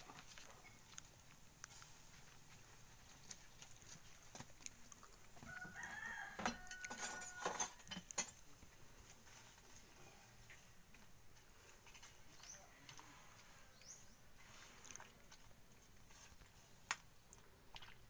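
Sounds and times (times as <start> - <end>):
rooster crowing: 5.4 - 7.9.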